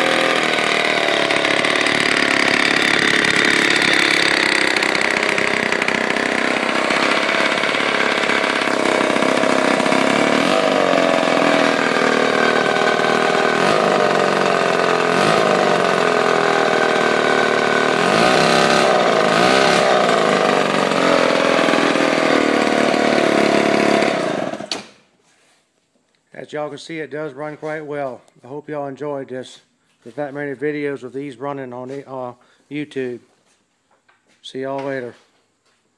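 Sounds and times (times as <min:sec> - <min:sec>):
two-stroke engine revving: 0:00.0 - 0:24.8.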